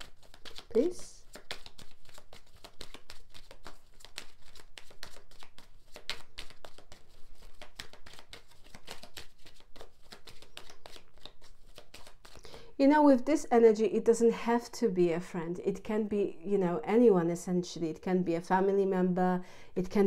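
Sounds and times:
cards being shuffled: 0:00.0 - 0:12.5.

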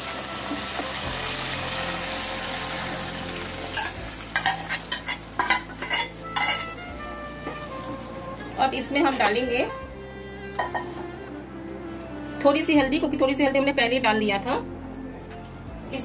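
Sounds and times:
lentils sizzling in hot oil: 0:00.0 - 0:09.6
metal ladle scraping pot: 0:03.7 - 0:06.9.

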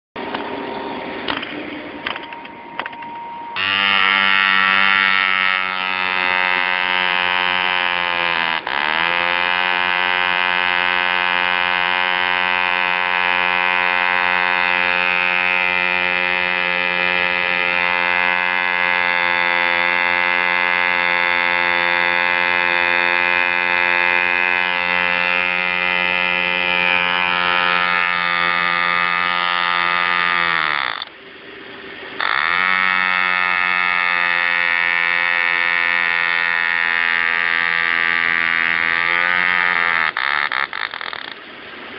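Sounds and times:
small model engine running: 0:03.6 - 0:31.2, 0:32.0 - 0:41.5.

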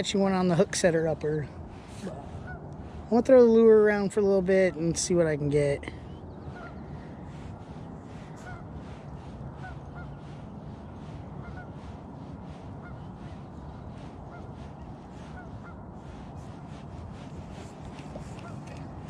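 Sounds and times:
geese honking: 0:06.5 - 0:07.5, 0:08.2 - 0:09.0, 0:09.6 - 0:13.4, 0:14.0 - 0:15.8.

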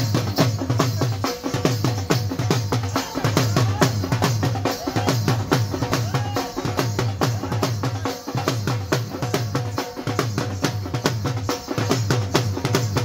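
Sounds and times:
drums beaten fast with sticks: 0:00.0 - 0:13.0.

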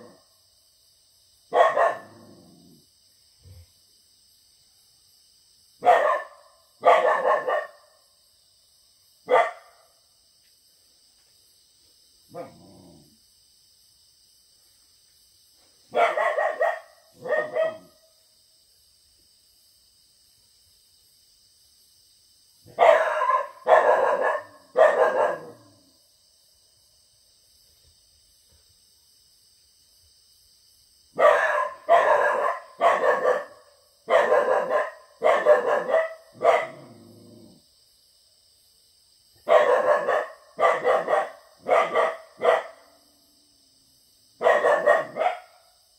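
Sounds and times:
crickets chirping: 0:00.0 - 0:45.9
dog barking: 0:01.5 - 0:02.3, 0:05.8 - 0:08.0, 0:09.3 - 0:09.9, 0:12.3 - 0:12.6, 0:15.9 - 0:18.0, 0:22.7 - 0:25.8, 0:31.2 - 0:37.0, 0:39.4 - 0:43.0, 0:44.4 - 0:45.7.

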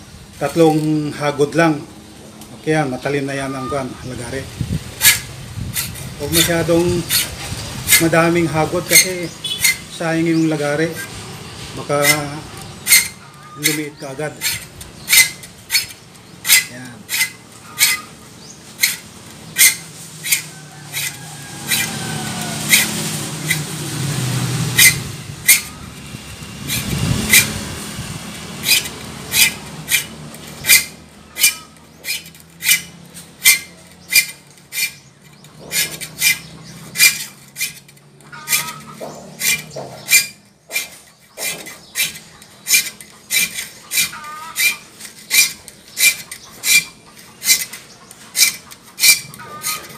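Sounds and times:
metal file rasping on saw teeth: 0:05.0 - 0:23.8, 0:24.4 - 0:49.9.

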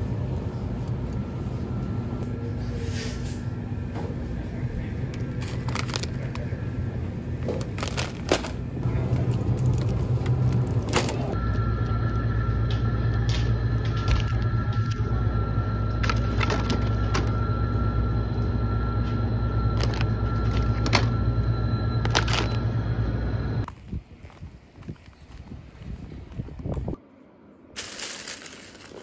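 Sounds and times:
refrigerator hum: 0:00.0 - 0:23.7
packaged goods rustling: 0:05.2 - 0:06.6, 0:07.4 - 0:11.4, 0:15.9 - 0:17.4, 0:19.6 - 0:21.2, 0:22.0 - 0:22.7, 0:27.8 - 0:29.0.

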